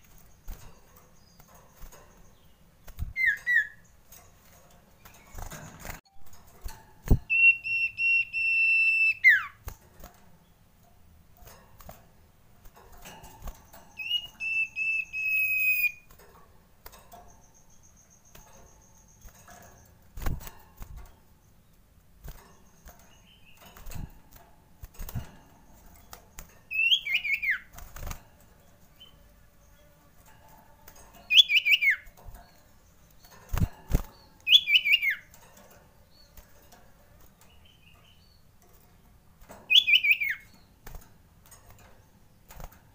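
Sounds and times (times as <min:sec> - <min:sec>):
bird whistling call: 0:07.3 - 0:09.6, 0:14.0 - 0:16.0, 0:39.7 - 0:40.4.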